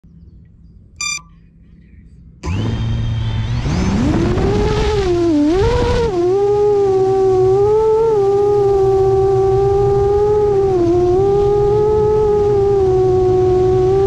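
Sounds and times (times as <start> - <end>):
drone motors whining: 1.0 - 1.2, 2.4 - 5.3
short electronic beep: 1.0 - 1.3.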